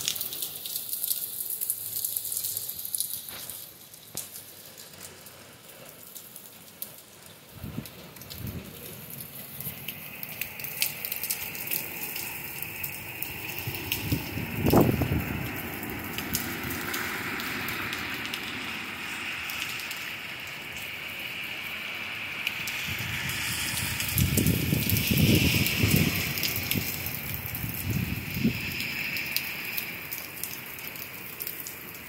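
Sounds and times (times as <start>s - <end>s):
drips crackling on surfaces: 0.0s - 32.0s
heavy rain pouring: 0.0s - 32.0s
wind buffeting microphone: 7.5s - 9.9s, 11.0s - 18.0s, 22.6s - 29.2s.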